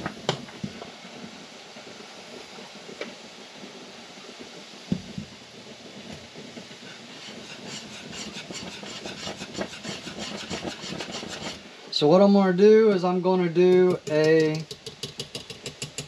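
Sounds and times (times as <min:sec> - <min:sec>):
knock: 0:04.9 - 0:05.3
whisk stirring: 0:06.9 - 0:11.7, 0:13.6 - 0:16.0.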